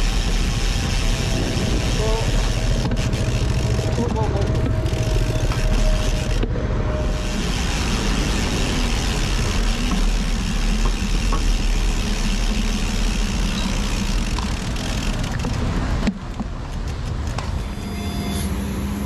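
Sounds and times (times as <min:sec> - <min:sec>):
traffic noise: 0:00.0 - 0:19.0
road hiss: 0:04.9 - 0:15.2.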